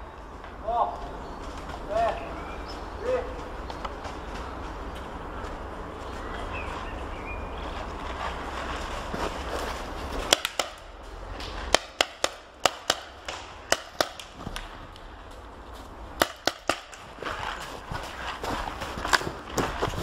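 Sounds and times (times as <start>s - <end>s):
paintball markers firing: 10.3s - 14.8s, 16.2s - 17.1s.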